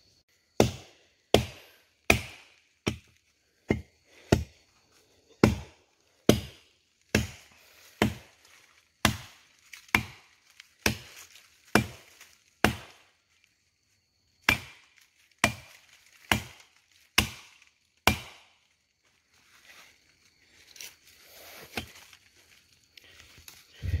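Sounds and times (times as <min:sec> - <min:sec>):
axe chopping wood: 0:00.5 - 0:04.6, 0:05.4 - 0:08.4, 0:09.0 - 0:13.1, 0:14.4 - 0:18.6.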